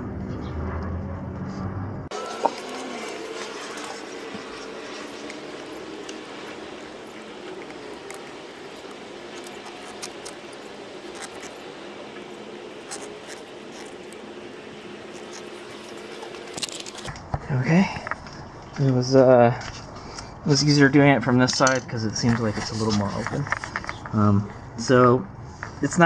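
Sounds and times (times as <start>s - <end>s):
faint hum: 0.0s - 26.0s.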